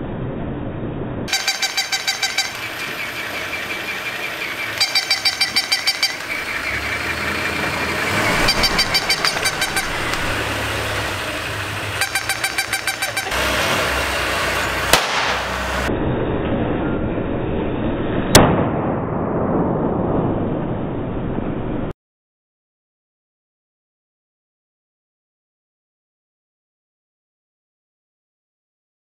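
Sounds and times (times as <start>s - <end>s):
car engine running low: 0.7s - 18.4s
electronic yapping: 1.3s - 13.5s
toy motor whirring: 1.3s - 13.5s.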